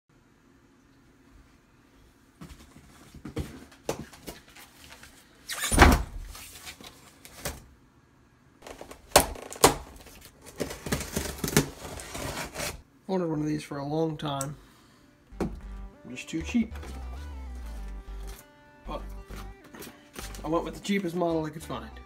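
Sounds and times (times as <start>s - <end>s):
cardboard and paper rustling: 6.2s - 7.6s, 8.6s - 12.8s, 19.3s - 20.8s.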